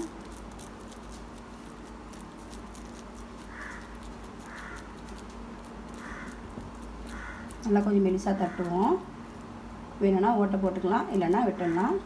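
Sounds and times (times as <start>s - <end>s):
crow cawing: 3.5s - 3.9s, 4.5s - 4.9s, 6.0s - 6.4s, 7.1s - 7.5s, 8.4s - 8.7s.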